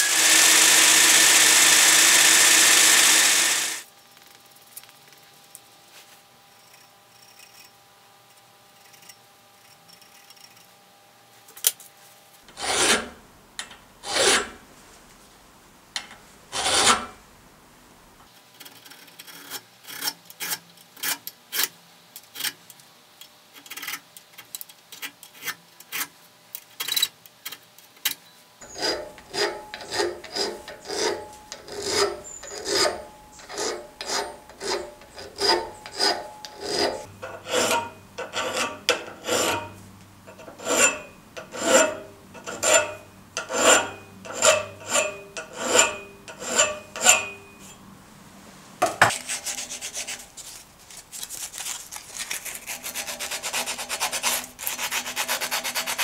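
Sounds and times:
file rasping on steel: 0.0s - 3.9s, 12.5s - 13.2s, 14.0s - 14.6s, 16.5s - 17.2s, 28.6s - 47.6s, 49.0s - 50.4s, 51.6s - 56.0s.

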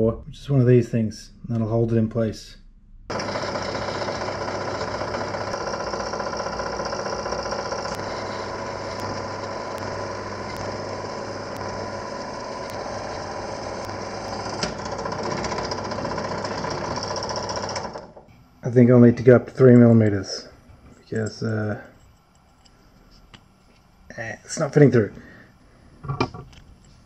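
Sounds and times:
drill press drilling metal: 3.1s - 18.3s.

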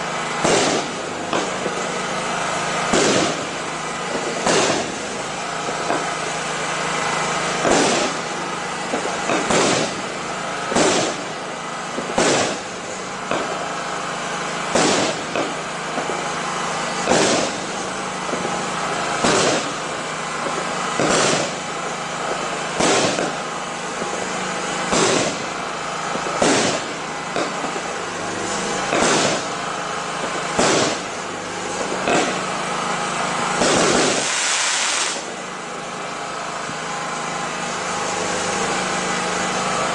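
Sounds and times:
continuous noise: 0.0s - 39.9s
fireworks bangs: 0.0s - 39.9s.

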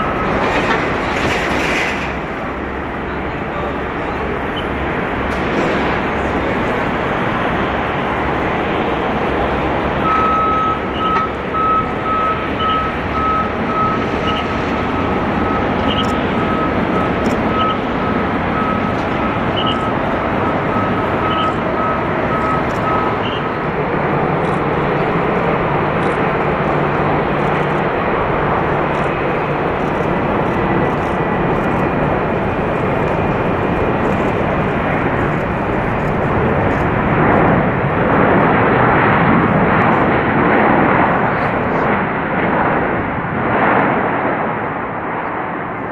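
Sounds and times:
jet engines rushing: 0.0s - 45.9s
short high electronic beeps: 15.5s - 17.8s, 19.5s - 20.0s, 20.8s - 23.4s.

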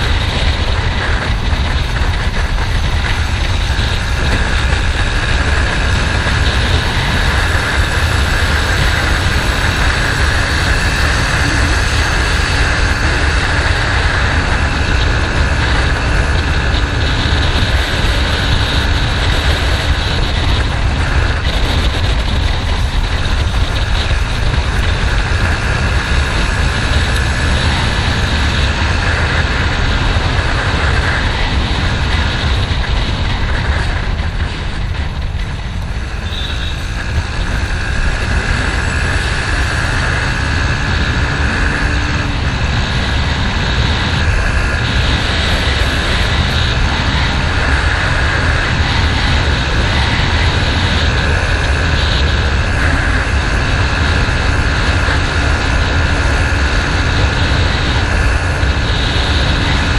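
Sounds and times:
motorcycle engine running: 0.0s - 59.9s
wind rushing on microphone: 0.0s - 59.9s.

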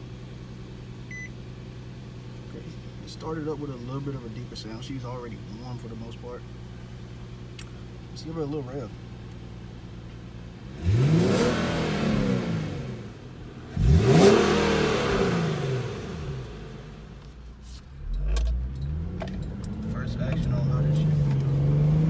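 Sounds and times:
car engine revving: 10.4s - 17.3s, 17.9s - 22.0s.

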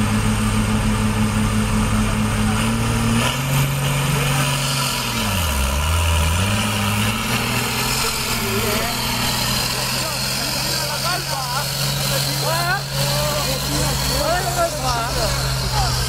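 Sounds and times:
diesel tractor engine running: 0.0s - 16.0s.

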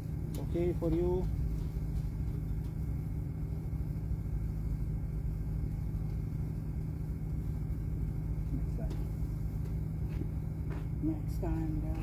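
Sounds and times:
steady low rumble with hum: 0.0s - 12.0s.

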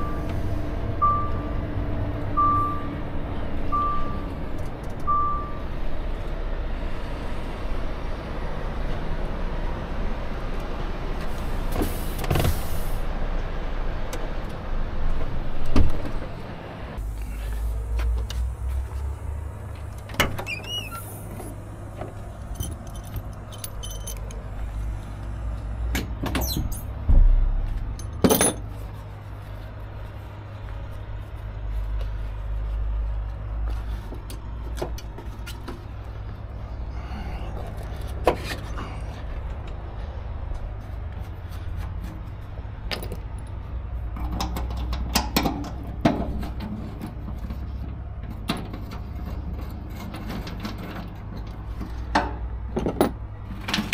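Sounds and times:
truck engine humming: 0.0s - 53.9s
sharp knocks and clunks: 25.9s - 28.7s.

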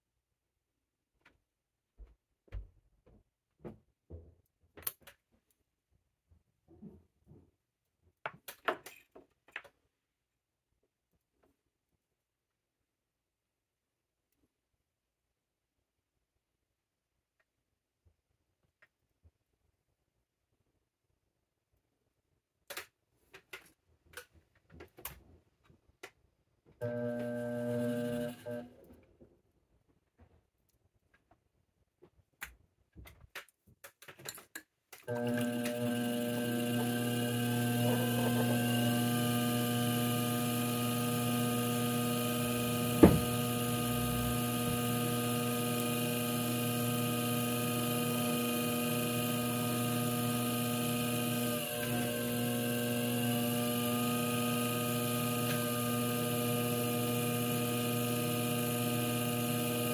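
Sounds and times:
potter's wheel motor humming: 26.8s - 28.7s, 35.1s - 59.9s.

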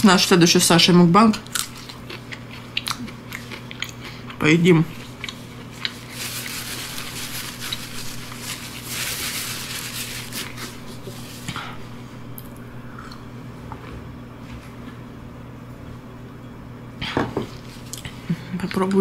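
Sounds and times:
paper napkin rustling: 5.8s - 11.6s.

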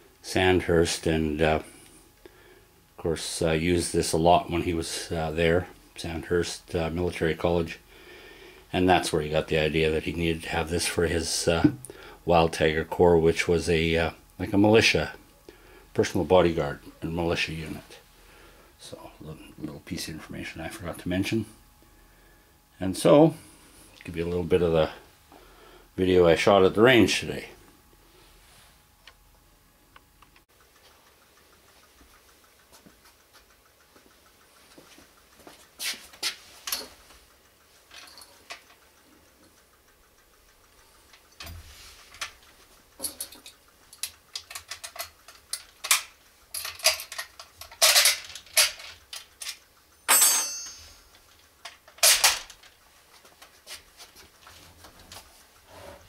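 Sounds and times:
rifle being handled and loaded: 43.1s - 49.6s, 51.7s - 52.7s.

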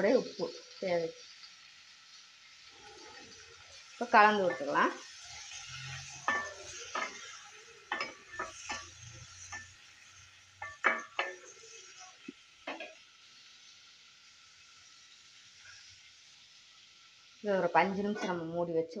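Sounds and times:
light sizzle: 0.0s - 19.0s
spoon knocking and scraping pan: 4.2s - 11.6s, 12.2s - 13.0s, 18.0s - 18.5s.

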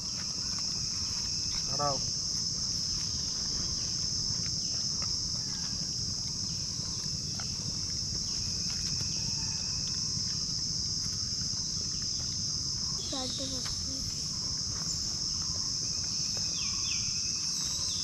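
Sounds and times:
faint ticks and rustles: 0.0s - 18.0s
high-pitched insect chorus: 0.0s - 18.0s.

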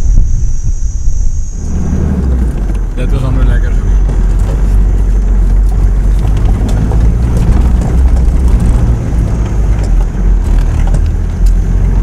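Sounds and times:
vehicle engine low rumble: 0.0s - 12.0s
knocks and rattles from bumps: 4.0s - 12.0s.

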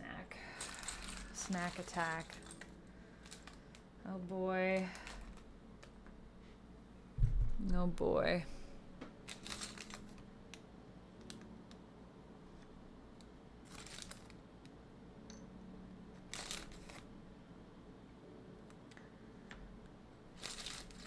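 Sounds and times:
faint lo-fi music: 0.0s - 21.0s
plastic pieces clicking: 0.6s - 3.8s, 4.7s - 6.0s, 9.3s - 10.6s, 20.4s - 21.0s.

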